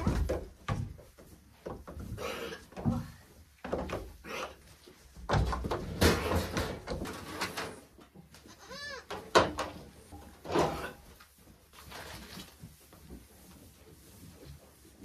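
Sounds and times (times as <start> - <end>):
rustling and knocking of handling: 0.0 - 15.0
goat bleating: 8.4 - 9.1.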